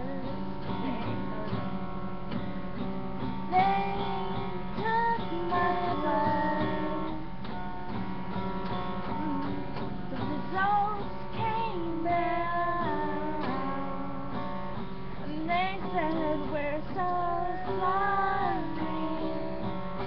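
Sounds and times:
acoustic guitar strumming: 0.0 - 20.0
girls singing together: 3.5 - 7.2, 9.1 - 14.4, 15.2 - 20.0.

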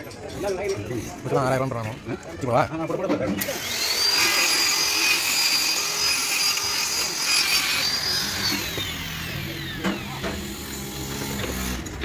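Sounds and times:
die grinder whining: 3.4 - 12.0.

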